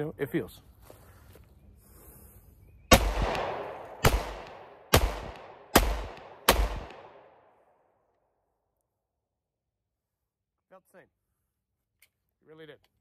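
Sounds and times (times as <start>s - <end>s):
pistol shots with echo: 2.9s - 7.4s.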